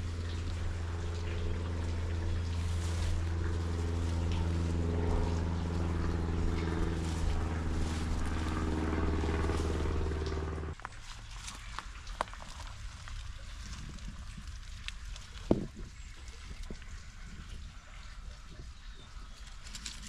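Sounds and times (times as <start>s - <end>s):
engine drone: 0.0s - 12.8s.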